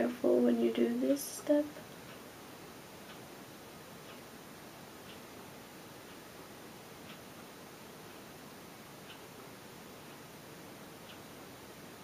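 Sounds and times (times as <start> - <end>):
faint soft ticks: 1.5 - 2.3, 3.0 - 3.3, 4.0 - 4.3, 5.0 - 5.3, 6.0 - 6.3, 7.0 - 8.3, 9.0 - 10.3, 11.0 - 11.3.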